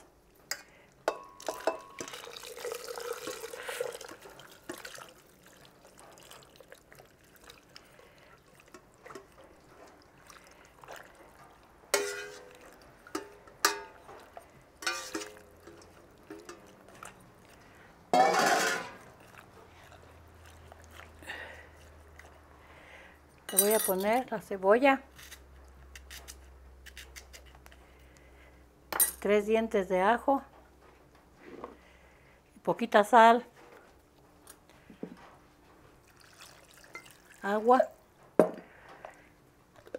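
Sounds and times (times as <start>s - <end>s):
wet sloshing and dripping: 1.4s - 22.9s, 35.9s - 37.6s.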